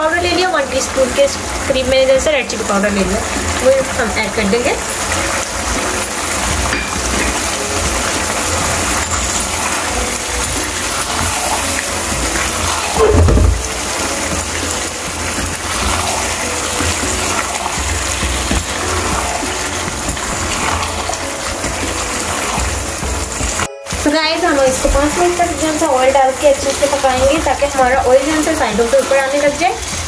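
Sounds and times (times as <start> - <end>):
food sizzling in a pan: 0.0 - 30.0
brief thump: 13.0 - 13.7.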